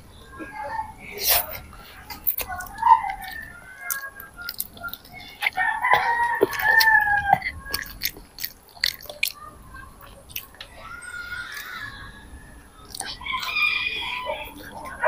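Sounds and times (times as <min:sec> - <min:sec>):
clicks and smacks of eating noodles: 0:01.2 - 0:10.8, 0:12.8 - 0:13.5
rooster crowing: 0:05.5 - 0:07.5, 0:10.9 - 0:15.0.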